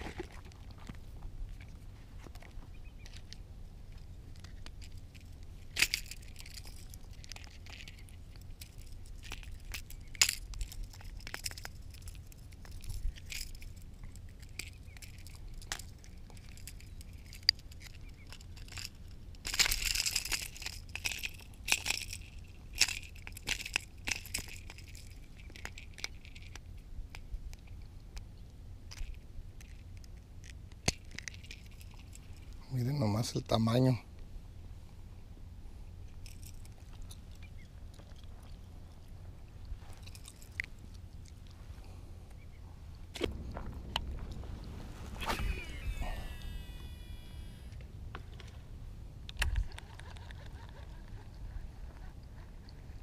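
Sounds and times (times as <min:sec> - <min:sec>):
treble hooks rattling: 0:04.4 - 0:26.7.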